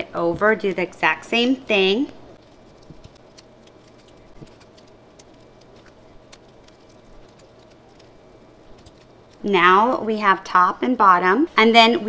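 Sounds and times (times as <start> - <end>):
tape crinkling and ticking: 0.1 - 9.5.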